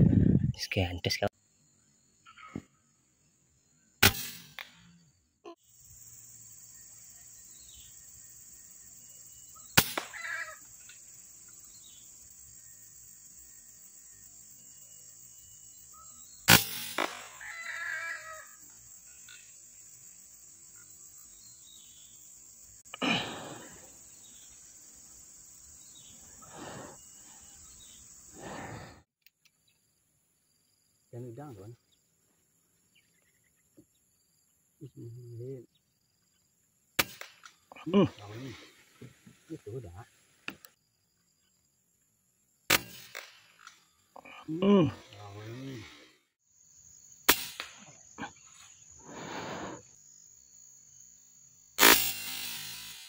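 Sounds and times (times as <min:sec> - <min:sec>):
insects droning in trees: 0:00.6 - 0:53.0
air rifle shot: 0:04.0 - 0:04.7, 0:09.8 - 0:10.2, 0:16.5 - 0:17.4, 0:37.0 - 0:37.4, 0:42.7 - 0:43.4, 0:47.3 - 0:47.8, 0:51.8 - 0:53.0.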